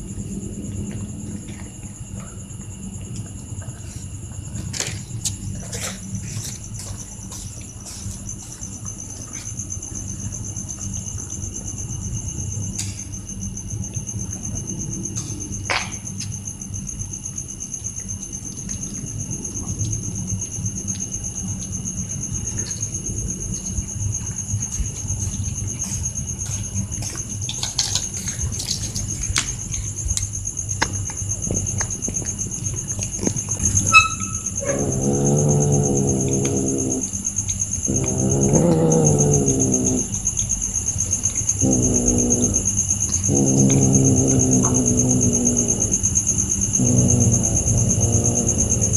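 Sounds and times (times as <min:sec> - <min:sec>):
cats chewing: 0:00.0 - 0:15.5, 0:17.2 - 0:33.9, 0:34.6 - 0:48.9
crickets trilling: 0:00.0 - 0:48.9
low background rumble: 0:00.0 - 0:48.9.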